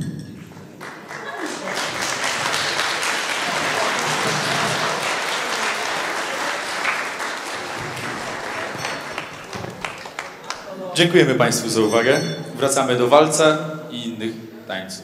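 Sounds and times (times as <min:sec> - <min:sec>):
audience applauding: 0:00.8 - 0:10.7.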